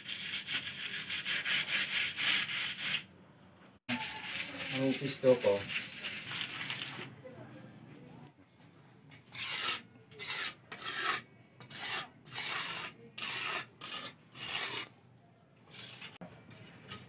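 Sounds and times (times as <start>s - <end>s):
trowel scraping cement plaster: 0.0s - 3.1s, 3.9s - 6.9s, 9.2s - 14.9s, 15.7s - 16.2s.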